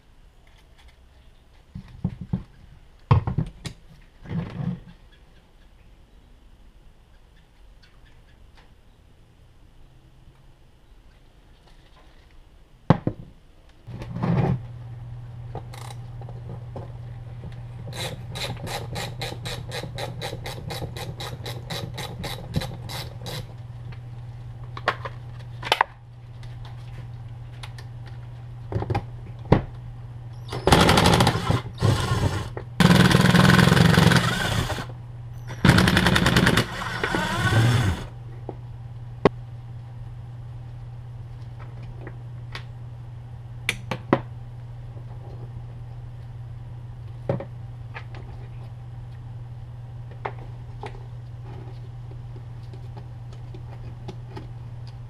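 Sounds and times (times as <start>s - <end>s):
cordless driver hammering: 30.6s - 34.9s, 35.6s - 38.1s.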